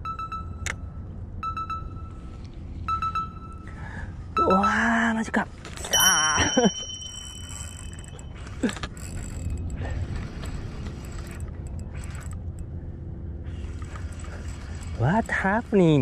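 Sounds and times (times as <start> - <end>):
fishing reel cranking: 6.0 - 12.4, 13.6 - 16.0.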